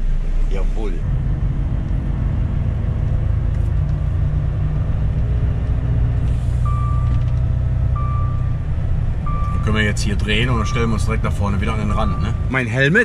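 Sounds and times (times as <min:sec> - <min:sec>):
diesel engine rumbling: 0:00.0 - 0:13.0
electronic warning beep: 0:06.6 - 0:07.2, 0:08.0 - 0:08.5, 0:09.3 - 0:12.7.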